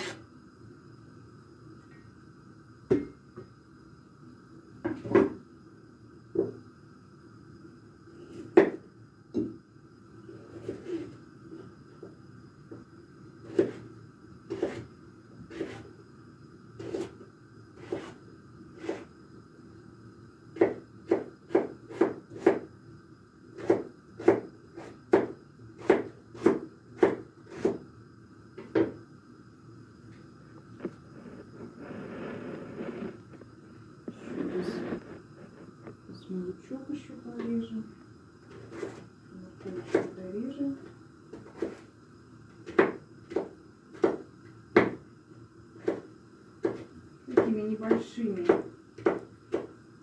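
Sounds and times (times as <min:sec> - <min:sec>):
knife chopping on wooden board: 0:13.5 - 0:13.8, 0:14.5 - 0:14.8, 0:20.6 - 0:22.7, 0:23.6 - 0:27.8, 0:39.8 - 0:40.1, 0:42.6 - 0:44.2, 0:44.8 - 0:45.0, 0:45.8 - 0:49.7
soft rustle: 0:30.7 - 0:33.5, 0:34.1 - 0:36.0.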